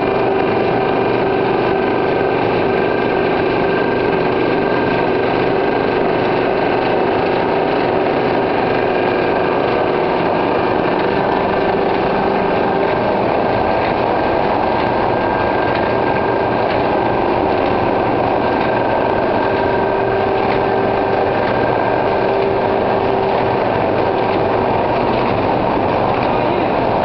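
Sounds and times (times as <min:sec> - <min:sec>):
machine hum: 0:00.0 - 0:27.0
machine mechanical clatter: 0:00.0 - 0:27.0.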